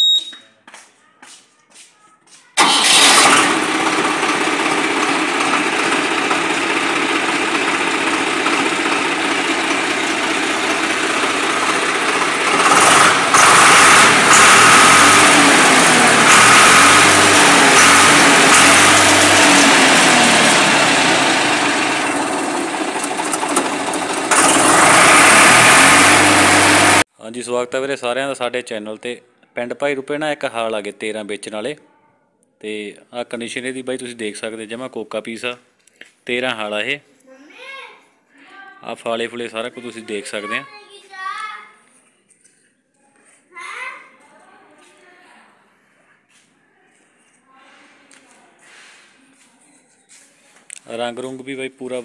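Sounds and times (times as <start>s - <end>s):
tractor diesel engine idling: 2.6s - 27.0s.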